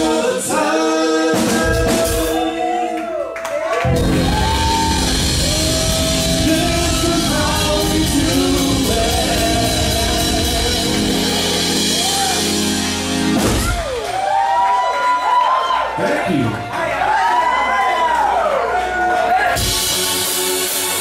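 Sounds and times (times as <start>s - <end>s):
live band playing dance song: 0.0s - 2.8s, 3.8s - 14.8s, 19.4s - 21.0s
drums: 0.0s - 3.0s, 3.8s - 15.5s, 19.2s - 21.0s
person singing lead vocal: 0.0s - 3.1s, 3.9s - 12.4s
electric bass: 3.8s - 14.1s.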